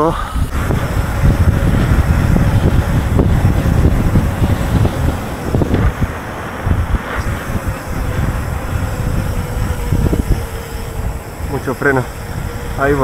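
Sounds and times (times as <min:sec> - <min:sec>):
wind buffeting microphone: 0:00.0 - 0:13.0
bike tyres rolling on wet asphalt: 0:00.6 - 0:08.6.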